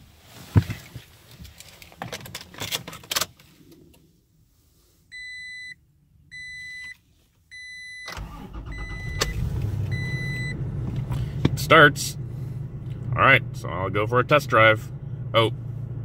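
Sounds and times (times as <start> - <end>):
car engine starting and running: 8.0 - 16.0
dashboard chime beeps: 9.9 - 10.6.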